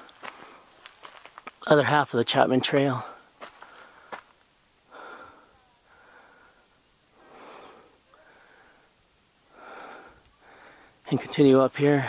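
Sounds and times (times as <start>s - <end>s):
person breathing heavily: 3.2s - 11.0s.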